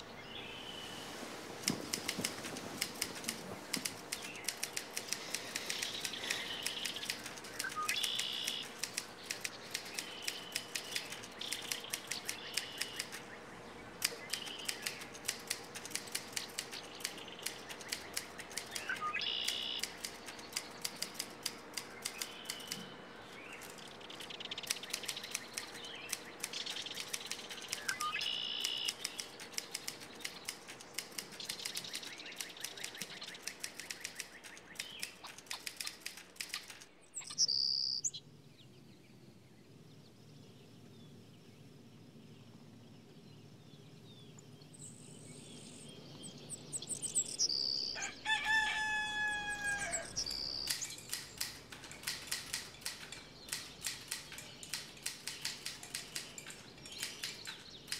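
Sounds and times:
small birds chirping: 0.0 - 57.9
typewriter keys clacking: 1.7 - 13.3, 14.0 - 36.9, 50.3 - 57.9.

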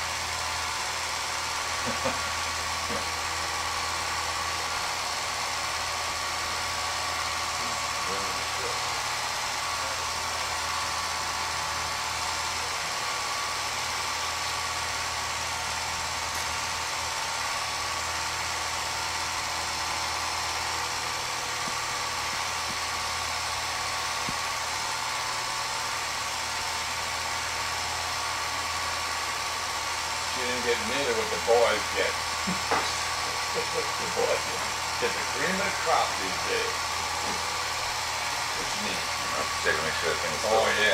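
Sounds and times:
film projector running: 0.0 - 40.9.

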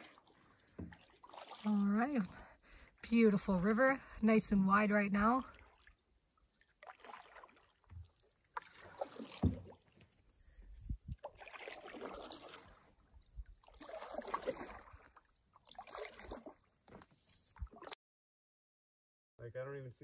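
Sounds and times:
paddle swishing water: 0.0 - 18.0.

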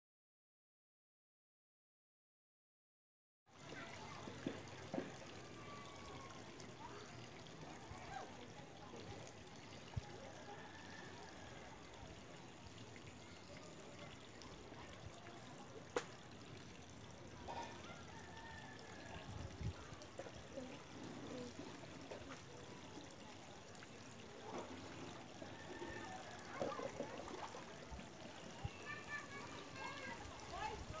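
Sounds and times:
water trickling: 3.5 - 31.0.

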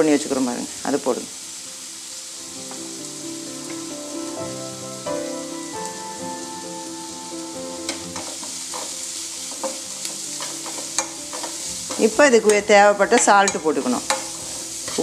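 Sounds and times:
vegetables sizzling in oil: 0.0 - 15.0
instrumental music: 1.6 - 15.0
ladle clicking against pan: 10.4 - 15.0.

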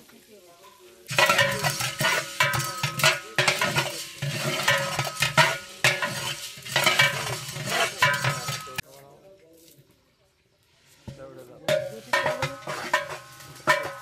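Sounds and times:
seeds sizzling: 0.0 - 8.9
metal spatula scraping a pot: 1.1 - 8.8, 11.7 - 14.0.

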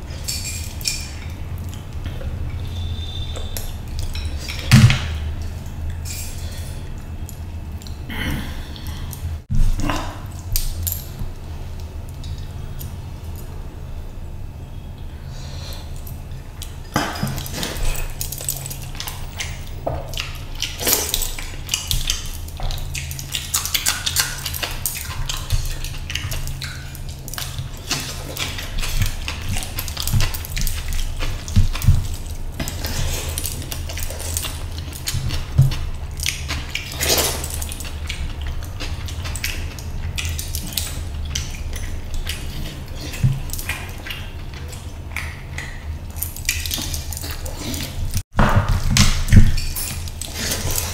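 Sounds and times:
steady low hum: 0.0 - 50.9
wet chewing and lip smacks: 17.4 - 48.2.

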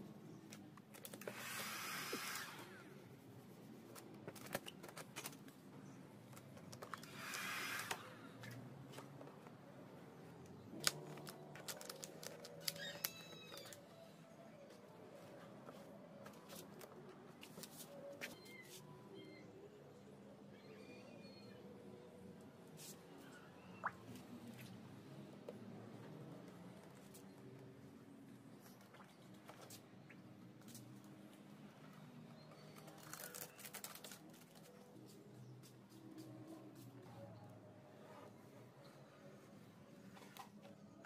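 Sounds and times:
vinyl film rustling and crackling: 3.8 - 5.7, 10.7 - 13.8, 32.7 - 35.2.

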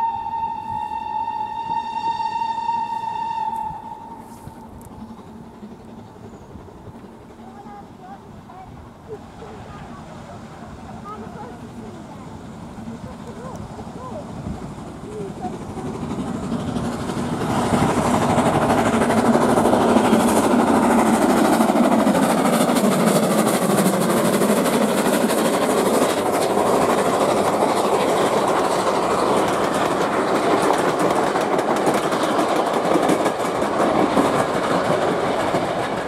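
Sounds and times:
steam train rolling: 0.0 - 36.0
wheels clattering over rail joints: 10.7 - 36.0.

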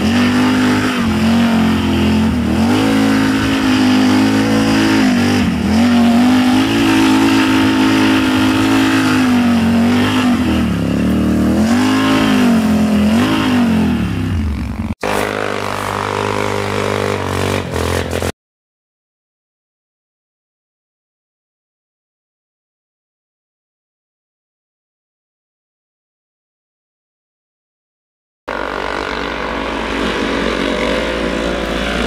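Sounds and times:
atv engine revving: 0.0 - 18.3, 28.5 - 32.0.

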